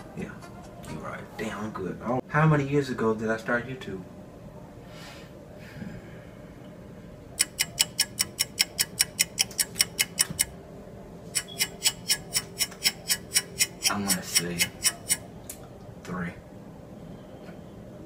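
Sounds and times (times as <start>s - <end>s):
rapid clock-like ticking: 7.4s - 10.5s, 11.4s - 15.2s.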